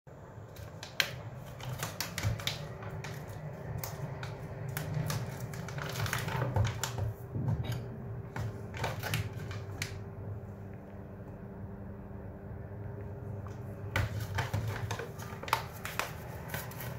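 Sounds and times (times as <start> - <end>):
low steady hum: 0.1 - 16.9
paper coffee filter crinkling: 0.5 - 7.2, 14.0 - 16.9.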